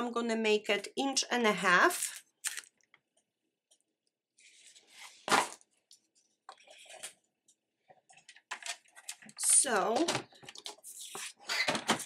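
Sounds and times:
paper rustling and sliding: 0:04.4 - 0:05.6.

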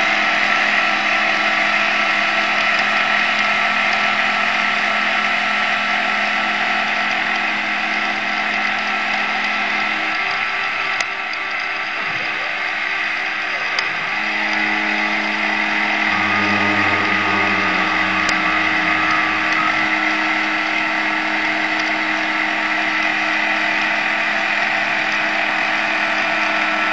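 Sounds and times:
spindle motor high whine: 0:13.7 - 0:26.6
low hum: 0:14.4 - 0:23.1.

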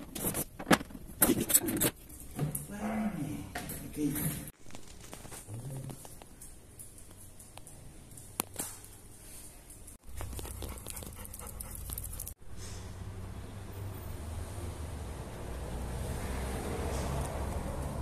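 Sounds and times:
dog claws clicking on tiles: 0:09.7 - 0:12.4
dog panting: 0:10.2 - 0:12.4.

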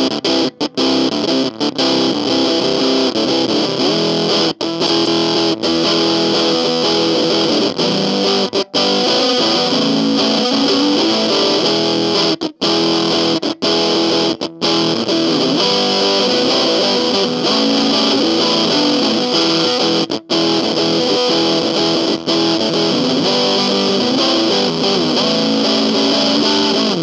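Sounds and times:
distorted electric guitar: 0:00.0 - 0:27.0.

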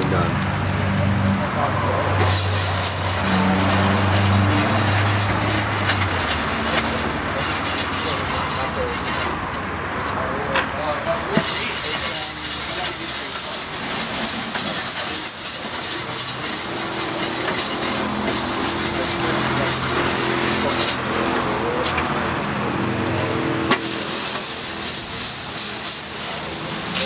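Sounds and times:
grill brush scrubbing grill plate: 0:02.2 - 0:09.4, 0:11.4 - 0:21.9, 0:23.6 - 0:27.0
water hissing and sizzling: 0:02.2 - 0:09.4, 0:11.4 - 0:21.8, 0:23.6 - 0:27.0.

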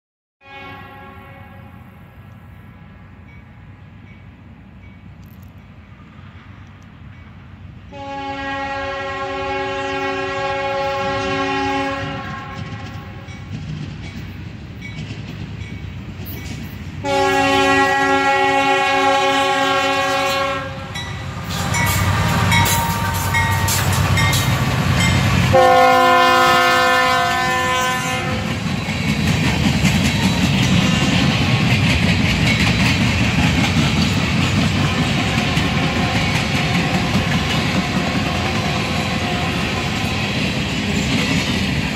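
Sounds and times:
train air horn blasts: 0:00.4 - 0:02.2, 0:07.9 - 0:13.4, 0:17.0 - 0:28.6, 0:30.7 - 0:31.6, 0:34.9 - 0:40.4
train cars clickety-clack: 0:03.3 - 0:41.9.

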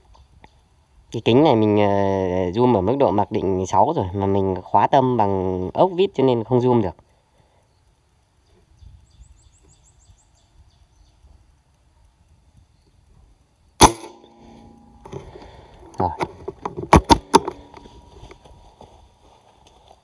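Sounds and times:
air rifle shot: 0:13.8 - 0:15.2
rifle handling clicks and knocks: 0:13.9 - 0:18.4.

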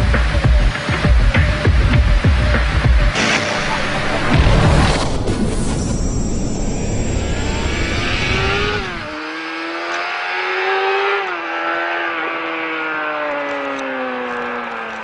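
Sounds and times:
motorcycle engine accelerating: 0:00.0 - 0:15.0
heavy wind-like rumble: 0:03.5 - 0:09.1.

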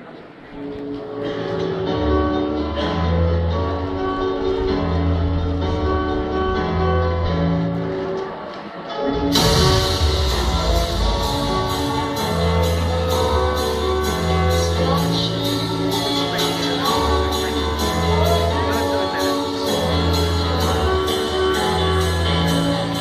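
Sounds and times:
music with steady beat: 0:00.8 - 0:23.0
person singing: 0:09.3 - 0:23.0.

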